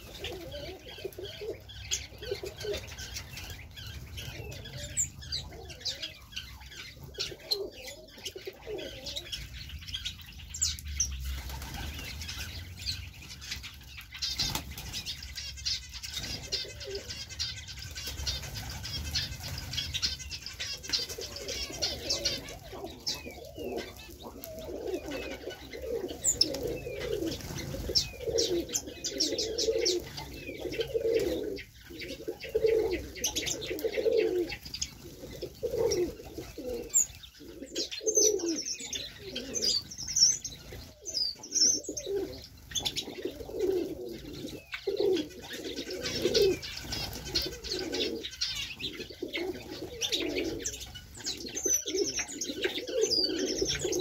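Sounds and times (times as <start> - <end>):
pigeons and doves cooing: 0.0 - 54.0.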